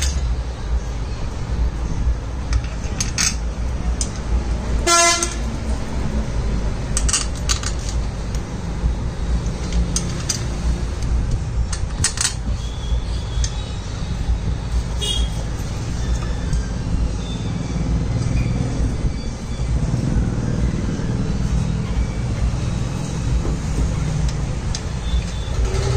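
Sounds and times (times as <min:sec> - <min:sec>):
metal clinks and taps: 0:09.6 - 0:10.6.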